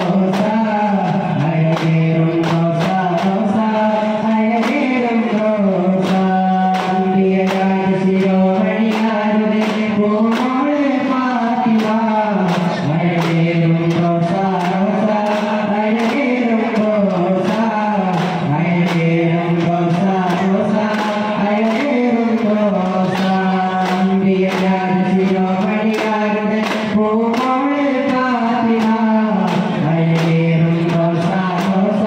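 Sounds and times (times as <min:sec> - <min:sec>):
frame drum beats: 0:00.0 - 0:32.0
man chanting a devotional melody: 0:00.0 - 0:32.0.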